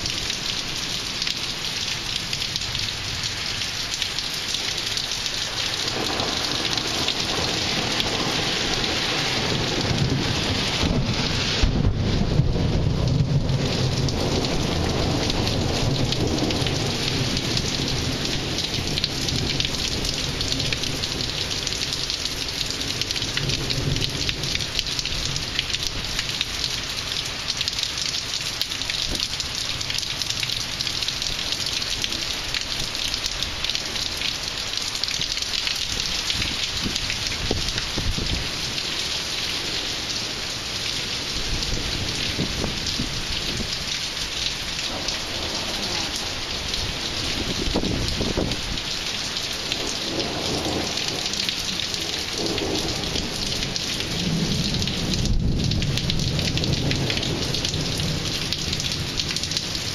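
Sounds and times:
heavy rain pouring: 0.0 - 59.9
low thunder rumbling: 5.7 - 21.8, 44.8 - 48.9, 49.7 - 59.2.

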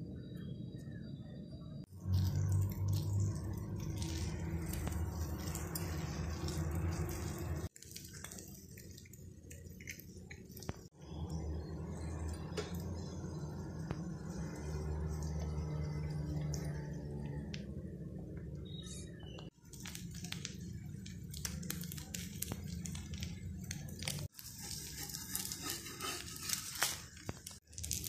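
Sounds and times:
faint sizzling: 19.4 - 28.0.

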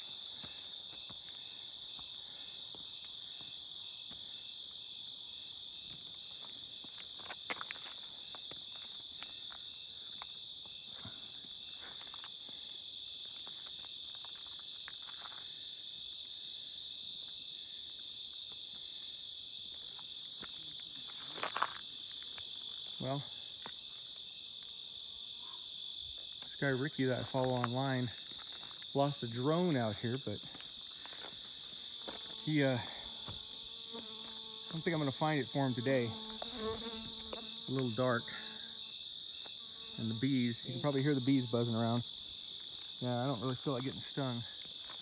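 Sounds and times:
crickets trilling: 0.0 - 45.0
footsteps on rubble: 6.0 - 10.8, 11.4 - 12.6, 13.2 - 15.4, 19.8 - 23.0, 27.2 - 29.0, 30.1 - 32.4, 44.5 - 45.0.

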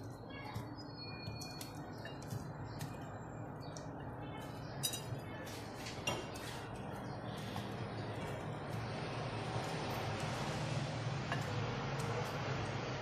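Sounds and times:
slices clinking on glass: 4.4 - 5.2.

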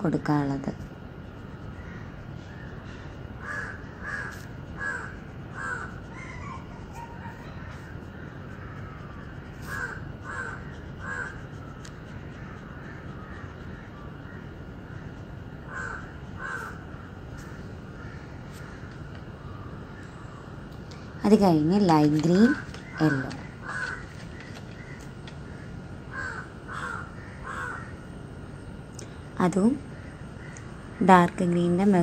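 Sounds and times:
steady background hiss: 0.0 - 32.0
crow cawing: 1.8 - 2.0, 3.4 - 6.2, 9.6 - 11.4, 15.7 - 16.8, 17.4 - 18.9, 22.9 - 28.0.

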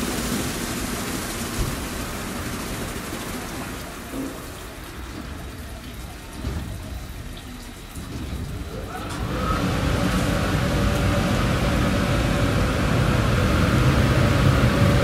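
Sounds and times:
car wash machine running: 0.0 - 15.0
rising whine: 9.1 - 15.0.

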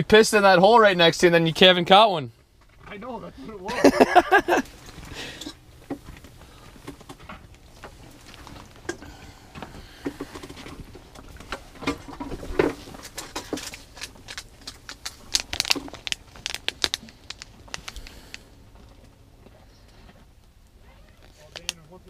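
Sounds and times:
hands handling fishing gear: 4.0 - 19.1
plastic package crinkling: 12.9 - 18.4.

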